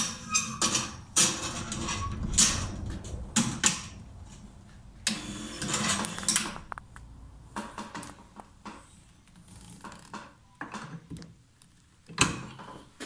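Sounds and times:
metallic scraping and rattling: 0.0 - 6.9.

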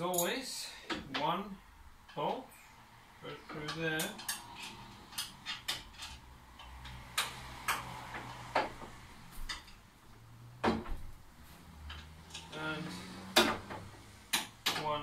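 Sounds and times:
metallic clicks and knocks: 3.4 - 9.9, 11.8 - 15.0.

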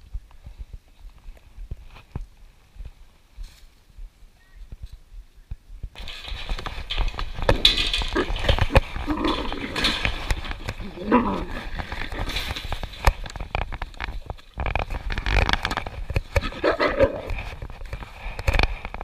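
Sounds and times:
clothing and leaves rustling: 0.0 - 19.0
wolves growling: 7.4 - 12.6, 16.4 - 17.6.

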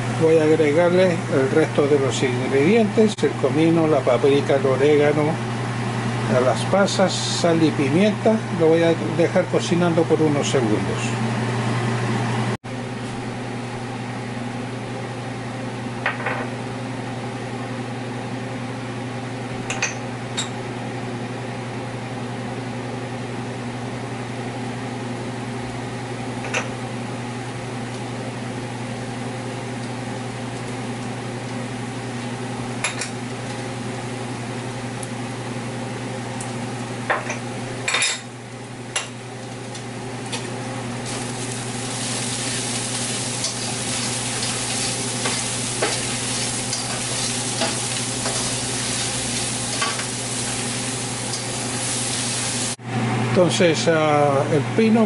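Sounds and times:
fan hum: 0.0 - 55.0
pan sizzling: 41.0 - 52.8.

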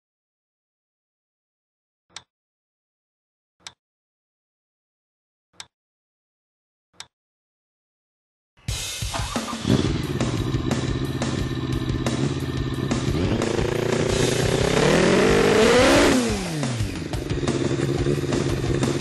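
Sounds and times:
engine starter: 9.1 - 19.0
rotary engine running and revving: 9.2 - 19.0.

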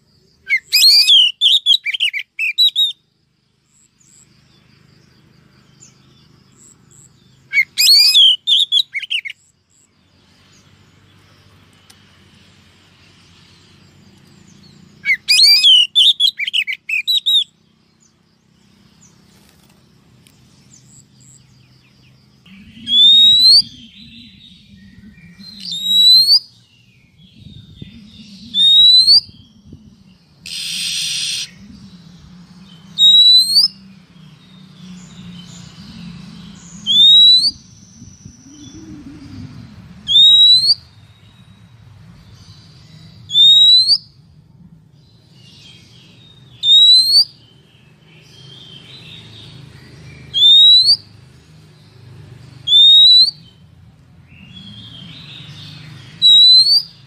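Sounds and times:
bird chattering song: 0.0 - 44.4, 45.0 - 57.0
harsh buzzy bird call: 0.4 - 3.0, 7.4 - 9.4, 15.0 - 17.6, 22.5 - 23.9, 30.4 - 31.6, 46.6 - 47.4, 52.6 - 53.6, 56.1 - 57.0
rising whistled bird notes: 0.4 - 3.0, 7.5 - 9.4, 15.0 - 17.5, 22.4 - 41.6, 42.9 - 44.3, 45.4 - 47.4, 50.3 - 51.1, 52.6 - 53.6, 54.3 - 57.0
low steady hum: 16.7 - 43.4, 44.0 - 46.7.

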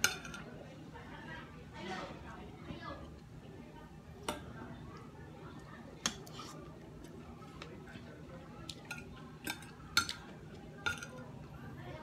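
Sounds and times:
cutlery clinking on a plate: 0.0 - 0.5, 8.7 - 11.2.

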